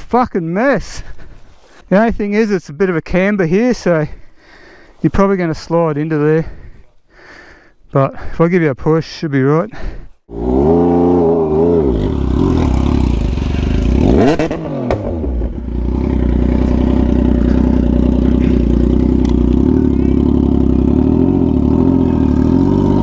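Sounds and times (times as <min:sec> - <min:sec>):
motorcycle engine revving: 0:10.3 - 0:23.0.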